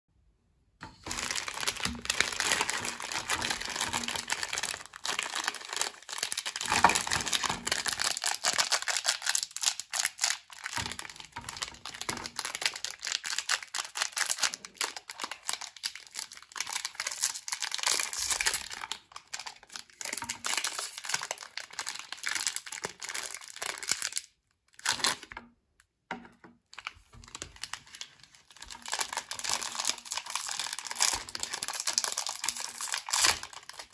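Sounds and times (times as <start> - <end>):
plastic wrappers crinkling and tearing: 0.9 - 25.3, 26.7 - 33.9.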